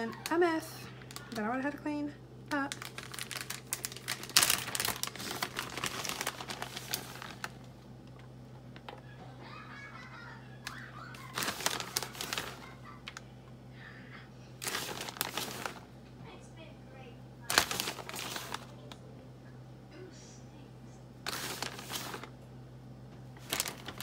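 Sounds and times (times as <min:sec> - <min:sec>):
plastic bag crinkling: 0:00.0 - 0:01.4, 0:02.5 - 0:09.0, 0:10.7 - 0:13.2, 0:14.6 - 0:15.9, 0:17.4 - 0:18.9, 0:21.2 - 0:22.4, 0:23.4 - 0:24.0.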